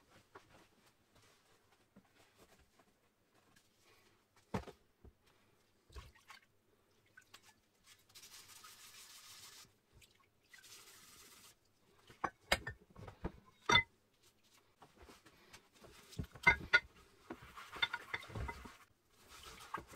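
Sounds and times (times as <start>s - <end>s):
metal disc knocking and scraping: 13.5s - 13.9s, 16.3s - 16.9s, 17.7s - 18.8s.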